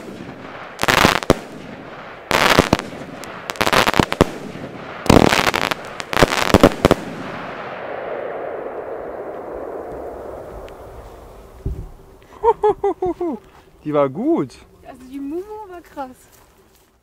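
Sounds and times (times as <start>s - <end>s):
firework bangs and crackling: 0.0s - 12.0s.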